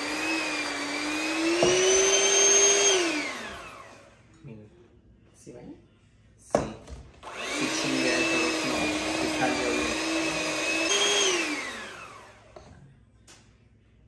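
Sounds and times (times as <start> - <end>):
electric mixer motor: 0.0 - 4.2, 7.2 - 12.7.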